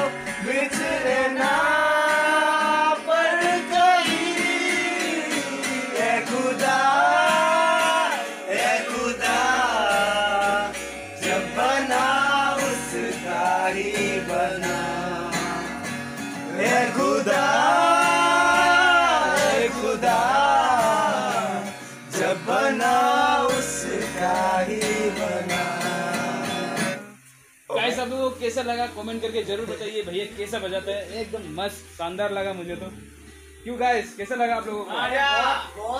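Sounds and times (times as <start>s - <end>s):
man singing: 0.0s - 15.9s, 16.5s - 27.2s
acoustic guitar: 0.0s - 35.9s.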